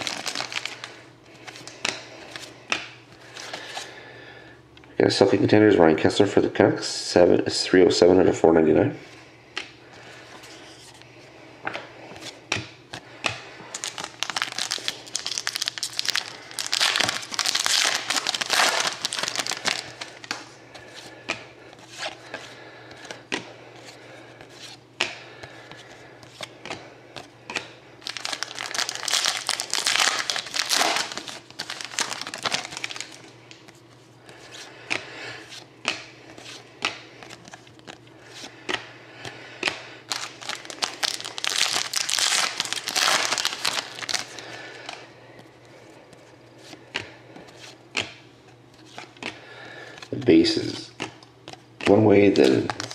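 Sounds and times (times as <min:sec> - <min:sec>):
wrappers crinkling and tearing: 0:00.0 - 0:02.5, 0:13.7 - 0:20.4, 0:28.0 - 0:33.7, 0:40.0 - 0:45.0, 0:52.2 - 0:52.9
cards sliding and tapping: 0:48.8 - 0:49.4.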